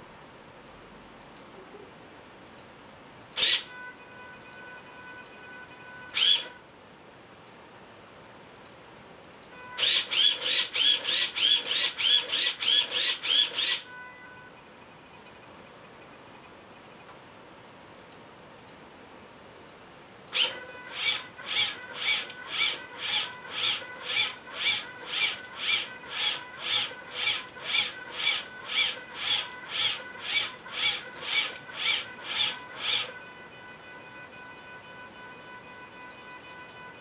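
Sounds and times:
robot arm rasping whine: 0:06.0 - 0:06.6, 0:20.3 - 0:35.4.

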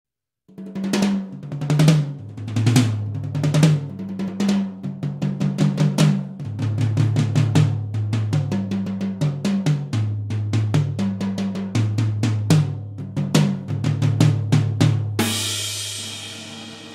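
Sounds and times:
snare drum strokes: 0:14.4 - 0:16.9.

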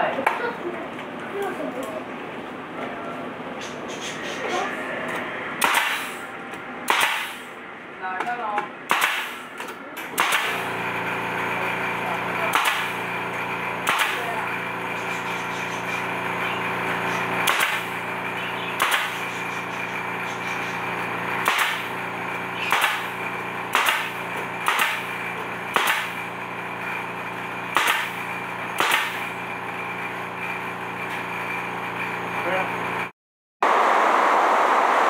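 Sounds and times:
nail gun firing: 0:05.6 - 0:06.2, 0:06.9 - 0:07.5, 0:08.9 - 0:09.5, 0:10.1 - 0:10.7, 0:12.5 - 0:13.0, 0:13.8 - 0:14.3, 0:17.4 - 0:18.0, 0:18.8 - 0:19.2, 0:21.4 - 0:21.9, 0:22.7 - 0:26.2, 0:27.7 - 0:28.2, 0:28.8 - 0:29.3.

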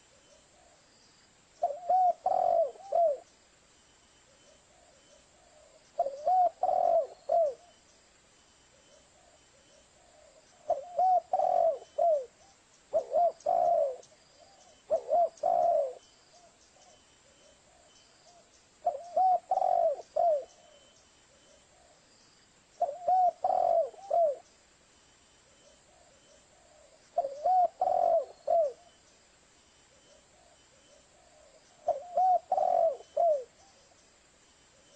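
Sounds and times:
dove cooing: 0:01.6 - 0:03.3, 0:04.4 - 0:07.8, 0:08.8 - 0:22.0, 0:22.8 - 0:24.5, 0:25.6 - 0:29.0, 0:29.9 - 0:33.9.

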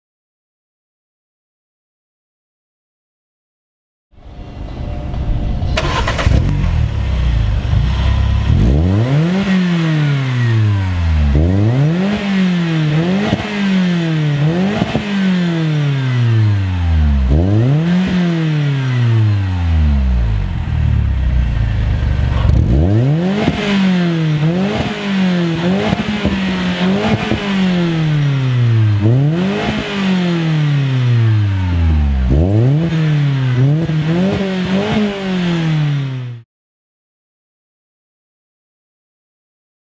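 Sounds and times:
car engine idling: 0:04.4 - 0:09.3, 0:19.0 - 0:32.4
car engine revving: 0:04.4 - 0:36.4.

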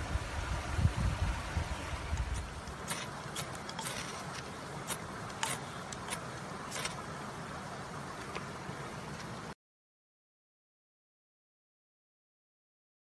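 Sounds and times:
striker rasping on fire-starter rod: 0:02.1 - 0:07.0.

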